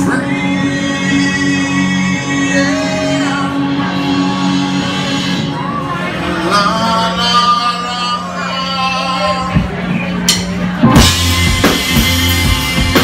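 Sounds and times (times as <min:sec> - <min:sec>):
drums: 0:00.0 - 0:07.2, 0:08.2 - 0:13.0
person singing: 0:00.0 - 0:09.8
bass guitar: 0:00.0 - 0:13.0
electric guitar: 0:10.7 - 0:13.0.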